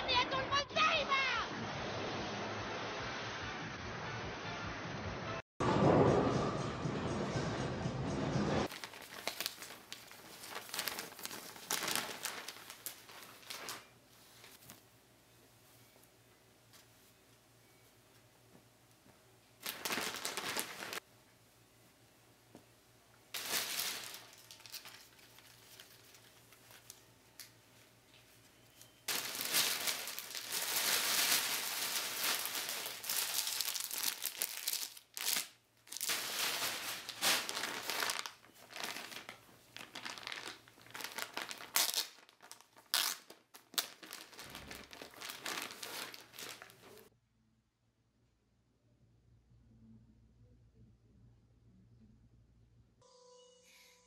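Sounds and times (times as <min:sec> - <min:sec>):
plastic bag crinkling: 0:08.7 - 0:14.6, 0:19.6 - 0:21.0, 0:23.4 - 0:27.5, 0:29.1 - 0:47.1.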